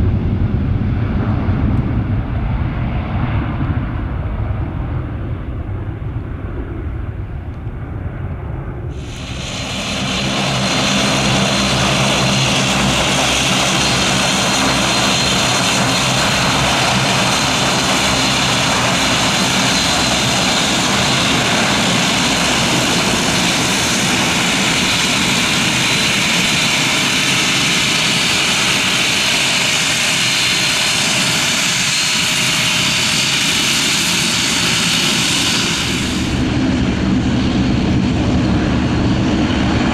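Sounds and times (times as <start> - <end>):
distant jet rumble: 0.0 - 39.9
turboprop engines roaring: 0.0 - 39.9.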